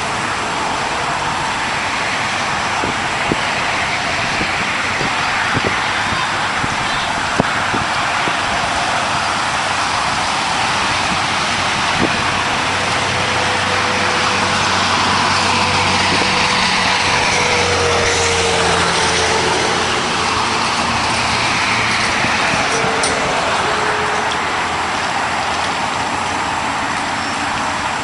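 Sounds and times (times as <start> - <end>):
heavy vehicle passing: 0.0 - 28.0
highway traffic hiss: 0.0 - 28.0.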